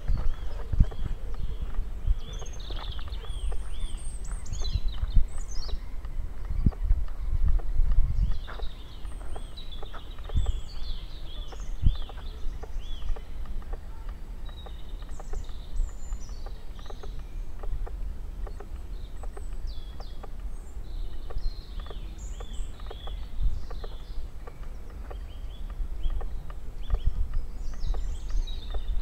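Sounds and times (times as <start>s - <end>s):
footsteps on sandy path: 0.0s - 10.7s
steady low rumble: 0.0s - 29.0s
woodland birds singing: 0.0s - 29.0s.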